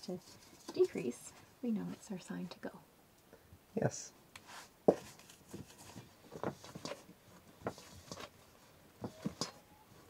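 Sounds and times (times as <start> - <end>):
hands kneading dough in bowl: 4.4 - 10.0.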